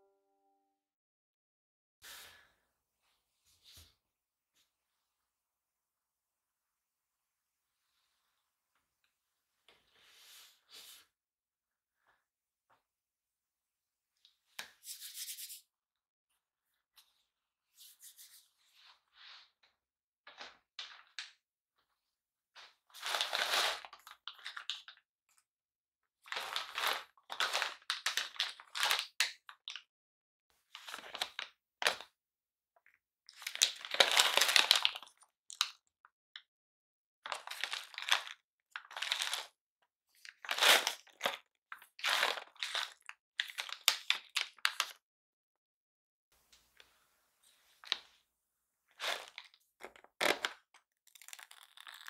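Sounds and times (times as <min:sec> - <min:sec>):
plastic pouch crinkling: 0:49.0 - 0:52.0.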